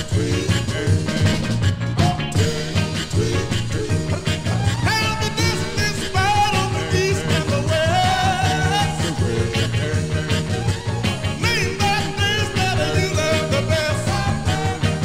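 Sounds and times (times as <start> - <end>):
rhythm and blues music: 0.0 - 15.0.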